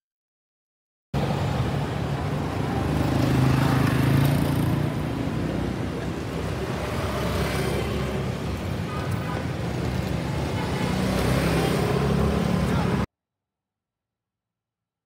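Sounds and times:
traffic noise: 1.2 - 13.1.

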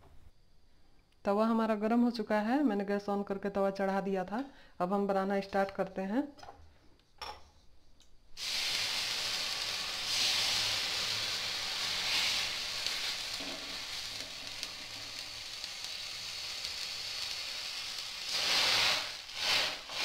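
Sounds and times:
water sizzling on hot griddle: 8.4 - 20.0.

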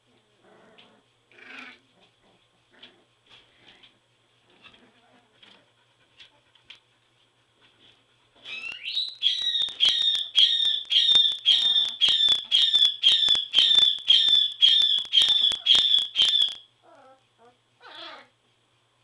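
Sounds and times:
puppy yelping: 8.4 - 18.3.

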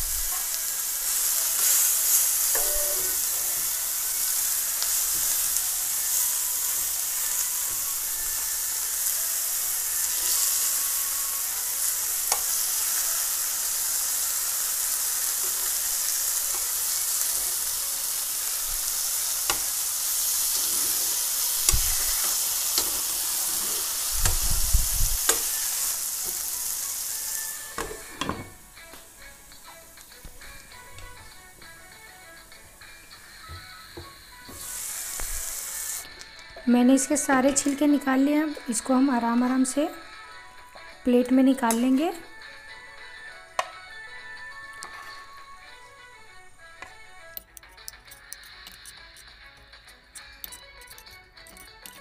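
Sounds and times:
tomatoes sizzling in hot oil: 0.0 - 46.0
tongs clicking and knocking: 46.8 - 52.0.

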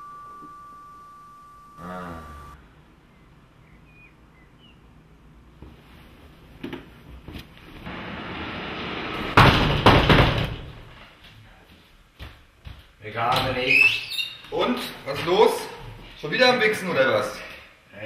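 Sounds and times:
banging and rattling on glass door: 9.3 - 10.8.

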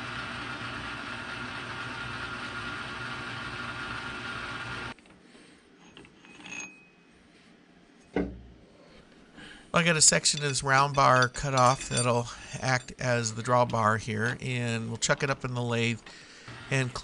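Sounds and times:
thump: 8.1 - 8.5
faint metal clinks: 10.2 - 13.0
metal lathe running: 10.3 - 13.8.

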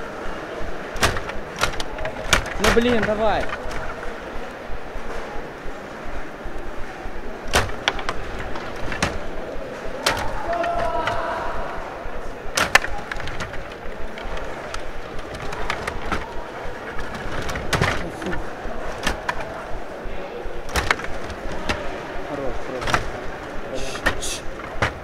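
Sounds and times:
metal rods rattling: 0.8 - 4.2, 7.5 - 11.5, 12.6 - 19.8
puck clacking against plastic: 1.0 - 4.2, 7.5 - 11.4, 12.5 - 19.7, 20.6 - 22.1, 22.7 - 25.0.

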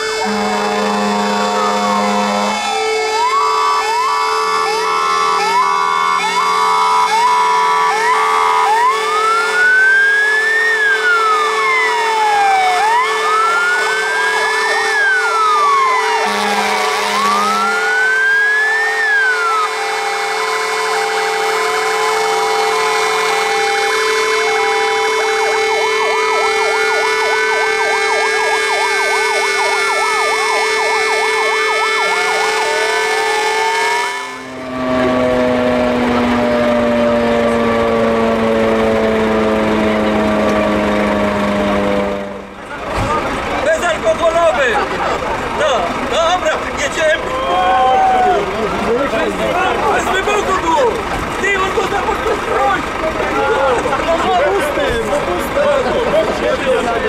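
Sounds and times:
horn blasts: 0.0 - 42.8
fire engine sirens: 0.0 - 57.0.

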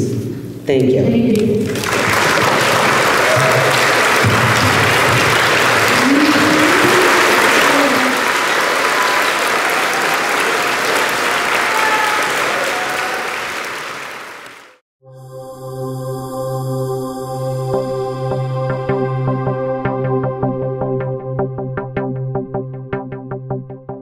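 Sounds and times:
audience applauding: 1.6 - 14.8
voices calling out: 5.4 - 13.2.

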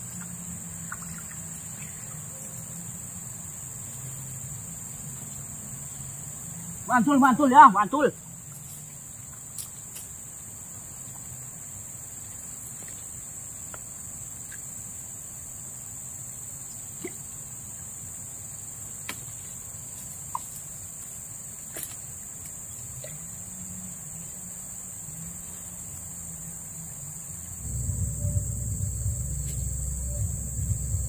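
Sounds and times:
insects droning: 0.0 - 31.0
low hum: 27.5 - 31.0.

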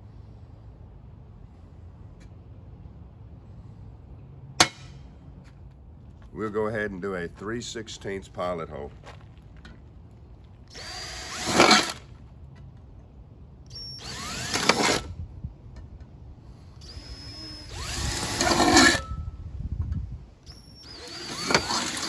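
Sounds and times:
cordless drill drilling metal: 10.7 - 12.0, 13.7 - 15.1, 16.8 - 19.1, 20.5 - 22.0.

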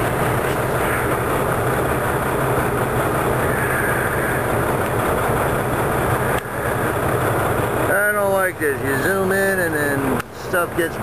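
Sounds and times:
diesel truck engine running: 0.0 - 11.0.

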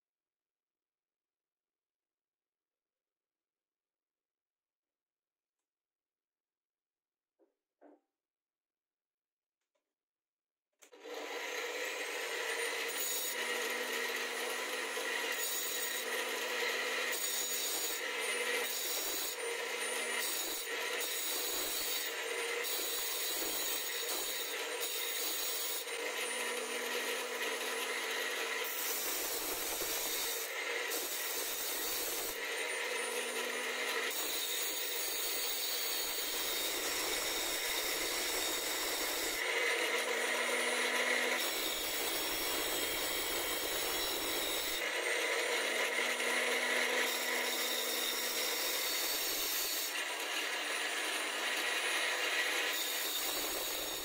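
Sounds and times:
angle grinder whining: 10.8 - 54.0
drill bit grinding on disc: 11.0 - 54.0.

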